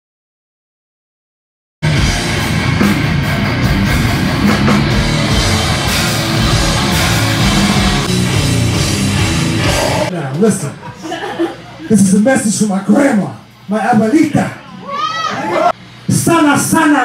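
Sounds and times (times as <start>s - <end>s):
grindcore band playing live: 1.8s - 10.9s.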